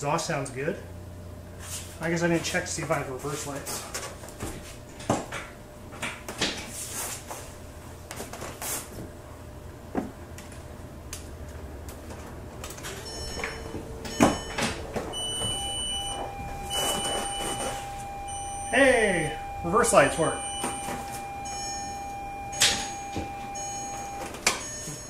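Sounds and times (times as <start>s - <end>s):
shifter clunks: 12.8s - 18.5s
car engine idling: 12.8s - 24.3s
continuous high beep: 13.0s - 25.0s.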